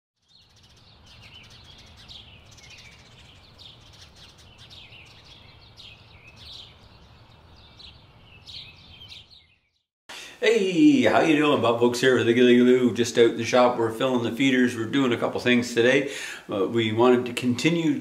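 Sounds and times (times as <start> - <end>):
birds twittering: 0.2 - 9.9.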